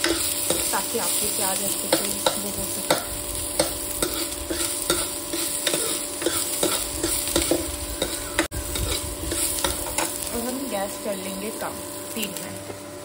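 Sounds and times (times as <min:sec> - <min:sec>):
steel spoon scraping a pan: 0:00.0 - 0:10.3
onions sizzling in a pan: 0:00.0 - 0:13.0.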